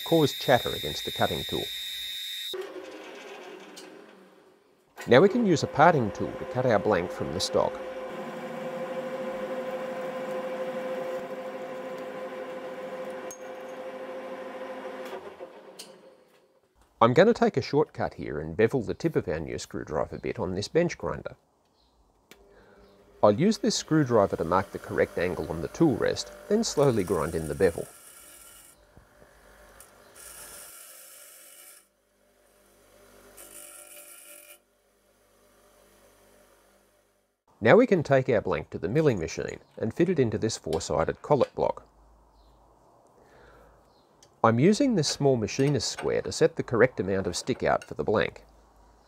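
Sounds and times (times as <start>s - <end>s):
metal lathe whining: 0.0s - 4.3s, 5.0s - 16.0s, 23.5s - 28.7s
grinder motor humming: 5.0s - 15.5s, 23.8s - 28.5s.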